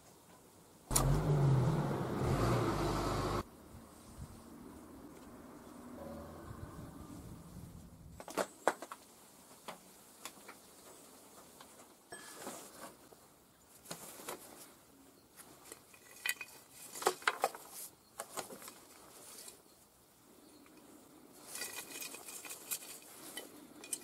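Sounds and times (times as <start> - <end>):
metal parts clinking and knocking: 15.6 - 17.6, 21.4 - 24.0.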